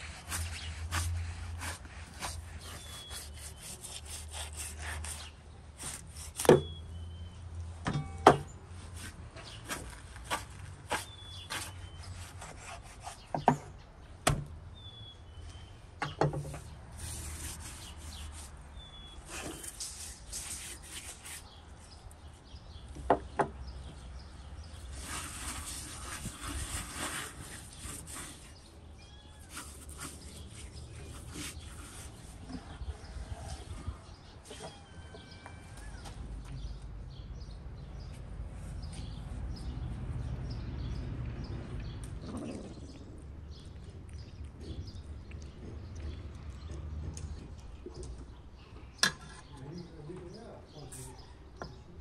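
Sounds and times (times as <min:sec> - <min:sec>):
sharp knocks: 0:07.8 - 0:08.5
faint bird chirps: 0:28.4 - 0:36.8.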